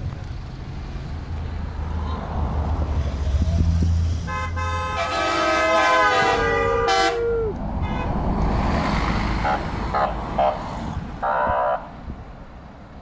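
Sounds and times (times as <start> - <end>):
vehicles rumbling past: 0.0 - 13.0
vehicle horn honking: 4.3 - 7.2, 7.8 - 8.2.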